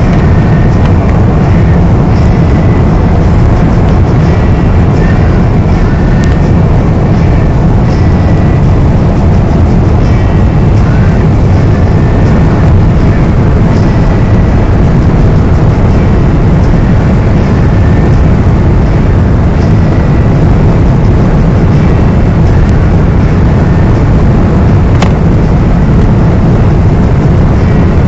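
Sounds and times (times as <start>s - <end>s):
wind and road noise in car: 0.0s - 28.0s
wind buffeting microphone: 0.0s - 28.0s.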